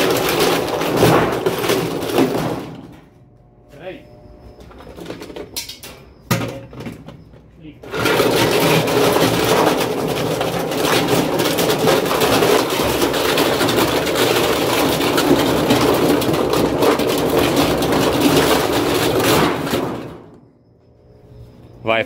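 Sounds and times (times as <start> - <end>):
washing machine grinding clatter: 0.0 - 3.1, 7.8 - 20.4.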